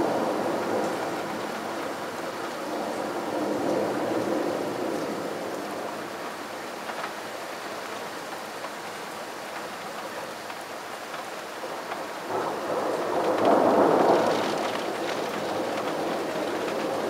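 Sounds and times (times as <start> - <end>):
rain hiss: 0.0 - 17.0
thunder rumble: 12.2 - 17.0.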